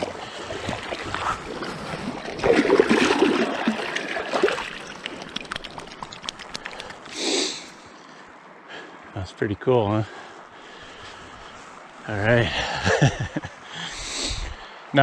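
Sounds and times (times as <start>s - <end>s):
fish splashing in shallow water: 0.0s - 8.1s
water trickling and dripping: 0.0s - 8.3s.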